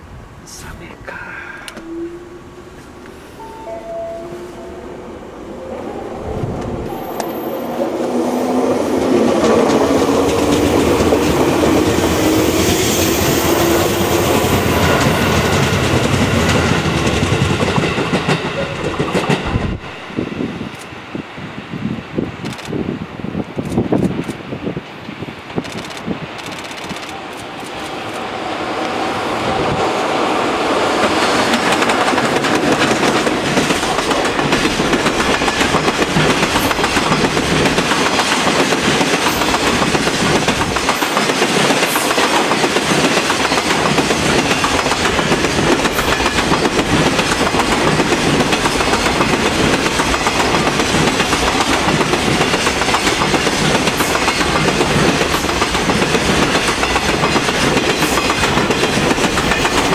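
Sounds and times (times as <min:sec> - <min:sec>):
train wheels clattering over rail joints: 0:31.0 - 0:59.9.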